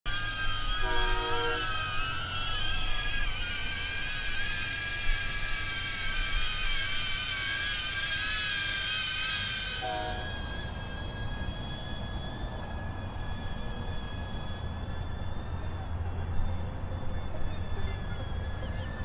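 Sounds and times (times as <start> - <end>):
drone motors whining: 0.1 - 19.0.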